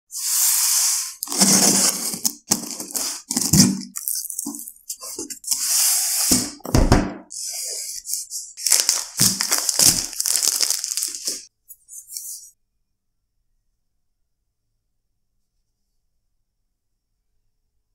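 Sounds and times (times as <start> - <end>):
shrink wrap crinkling: 1.2 - 5.6, 7.7 - 11.5.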